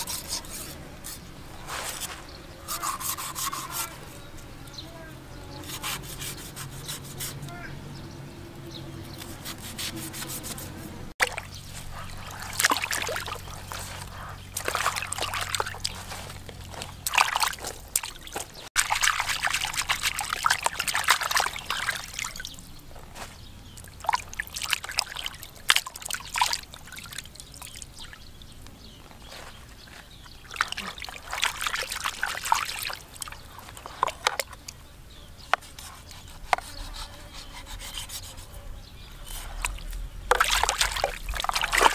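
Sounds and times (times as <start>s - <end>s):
water sloshing in plastic basin: 11.2s - 22.6s, 23.8s - 28.0s, 30.4s - 34.7s, 39.4s - 41.9s
knife cutting on wooden board: 35.5s - 38.3s.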